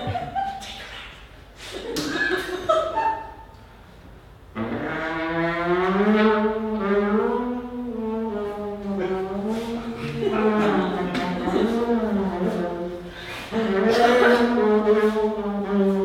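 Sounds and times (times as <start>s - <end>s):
trombone slide notes: 4.5s - 16.0s.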